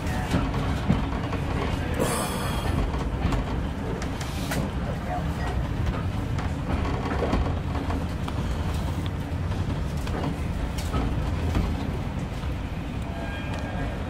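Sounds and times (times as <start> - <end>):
train carriage rumble: 0.0 - 14.0
clicks and knocks from wheels: 5.5 - 12.5.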